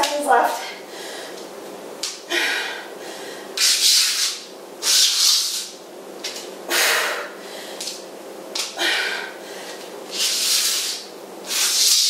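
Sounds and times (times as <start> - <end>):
sliders swishing across floor: 11.6 - 12.0.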